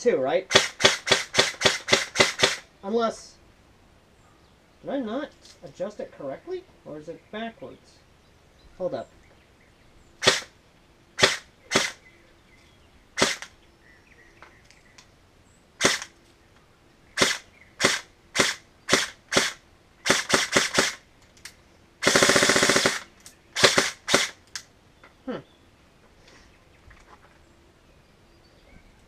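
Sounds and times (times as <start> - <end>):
airsoft rifle shots: 0.5 - 2.7, 10.2 - 10.5, 11.2 - 12.0, 13.2 - 13.5, 15.8 - 16.1, 17.2 - 21.0, 22.0 - 24.4.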